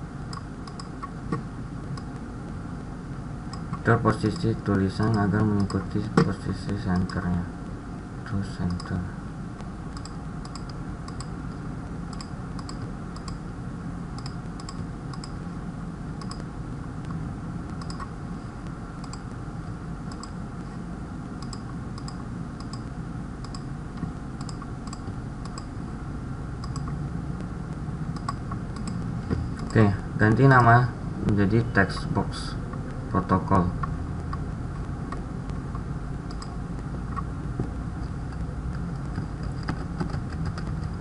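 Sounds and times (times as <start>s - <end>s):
steady low hum: 0.0s - 41.0s
computer mouse clicking: 0.3s - 1.4s, 3.5s - 6.3s, 6.9s - 7.4s, 10.0s - 11.4s, 12.1s - 13.4s, 14.2s - 15.4s, 16.2s - 18.1s, 19.0s - 19.4s, 20.1s - 20.4s, 21.4s - 25.7s, 26.6s - 27.0s, 28.2s - 30.4s, 35.1s - 37.3s, 38.0s - 41.0s.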